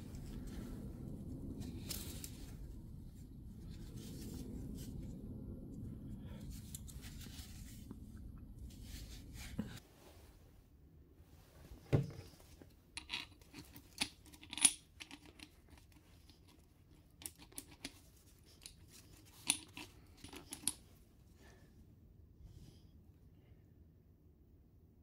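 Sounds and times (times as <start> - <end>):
soft handling rustle: 0.0 - 14.0.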